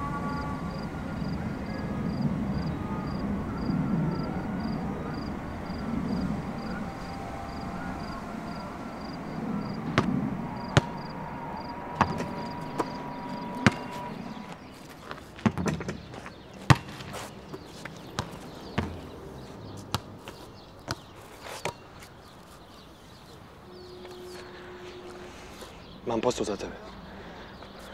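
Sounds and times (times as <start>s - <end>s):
basketball bouncing on court: 16.7s - 17.1s, 18.2s - 19.1s.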